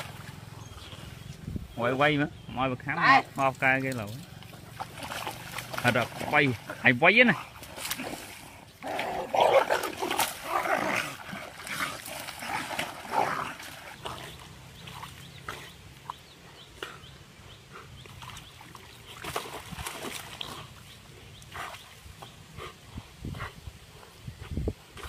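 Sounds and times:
dogs snarling: 0:04.5 - 0:15.8.

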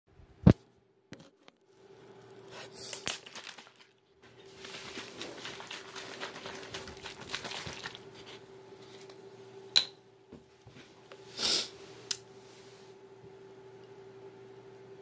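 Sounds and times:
faint steady hum: 0:00.2 - 0:15.0
plastic bottle rustling: 0:02.7 - 0:09.1
short hissing burst: 0:11.3 - 0:11.8.

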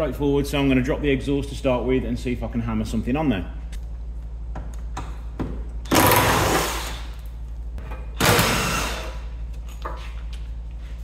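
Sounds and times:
steady low hum: 0:00.0 - 0:11.0
impact wrench whirring: 0:05.8 - 0:07.2, 0:08.1 - 0:09.4.

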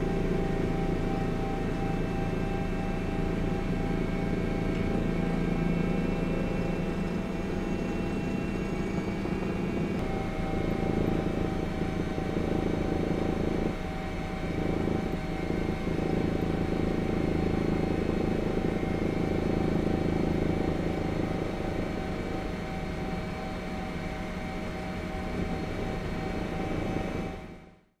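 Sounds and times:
helicopter turbine and rotor: 0:00.0 - 0:27.9.

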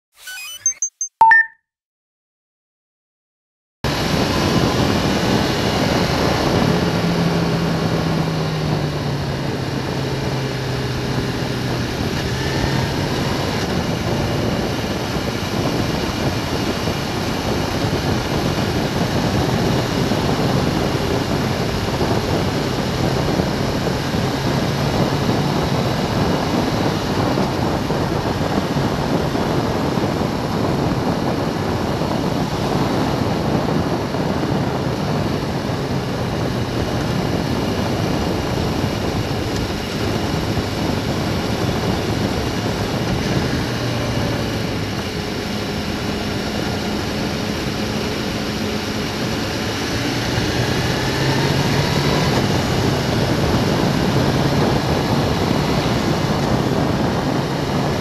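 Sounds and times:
wind and tyre noise: 0:03.9 - 0:58.0
motorcycle engine: 0:04.0 - 0:58.0.

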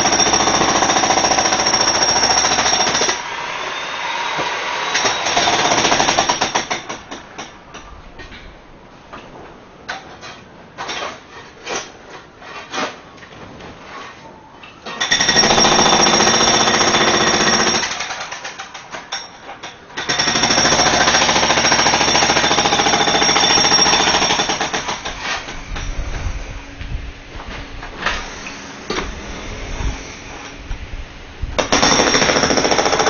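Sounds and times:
jackhammer breaking concrete: 0:00.0 - 0:03.2, 0:04.9 - 0:07.2, 0:15.0 - 0:19.3, 0:20.0 - 0:25.2, 0:31.6 - 0:33.0.

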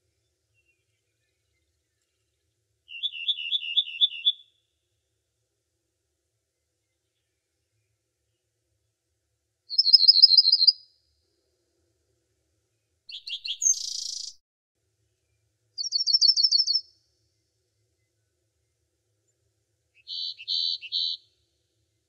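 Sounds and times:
small songbird trilling: 0:02.9 - 0:04.4, 0:09.7 - 0:10.8, 0:13.1 - 0:14.4, 0:15.8 - 0:16.8, 0:20.1 - 0:21.2.

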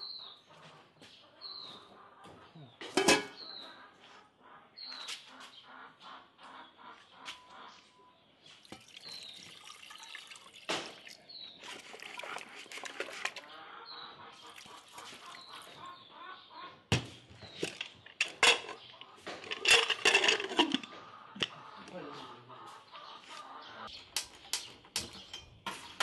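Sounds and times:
metal lid clinking: 0:02.9 - 0:03.4, 0:17.6 - 0:20.9
liquid pouring into a pot: 0:08.6 - 0:13.5.

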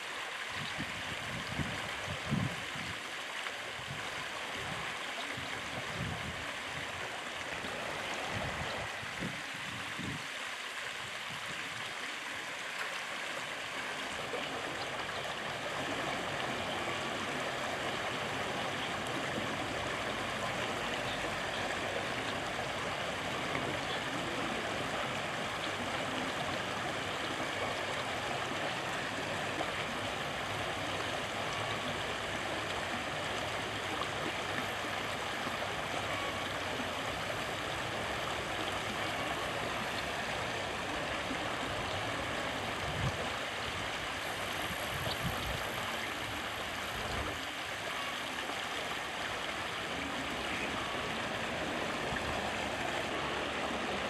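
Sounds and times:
river water rushing: 0:00.0 - 0:54.0.

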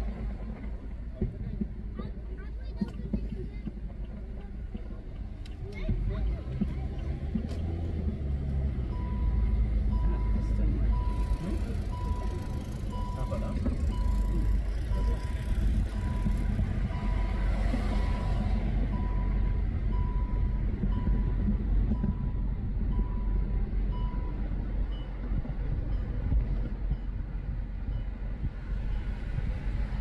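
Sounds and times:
road and engine rumble in car: 0:00.0 - 0:30.0
electronic warning chime beeping: 0:08.9 - 0:25.2.

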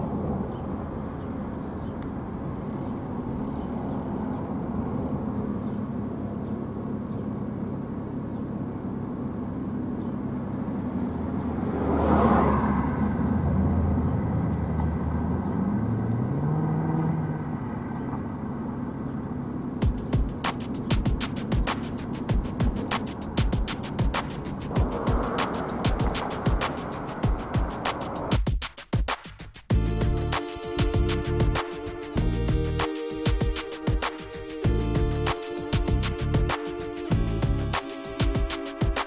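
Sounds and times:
street traffic hum: 0:00.0 - 0:39.0
vehicle accelerating: 0:00.1 - 0:28.3, 0:29.7 - 0:39.0
car passing by: 0:11.1 - 0:18.2, 0:22.8 - 0:28.4.

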